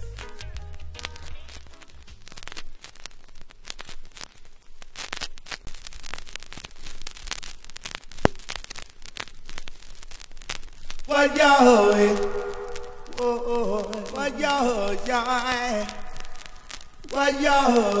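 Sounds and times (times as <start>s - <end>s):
vinyl pop: 0.0s - 2.8s, 11.0s - 18.0s
vinyl crackles and ticks: 0.0s - 18.0s.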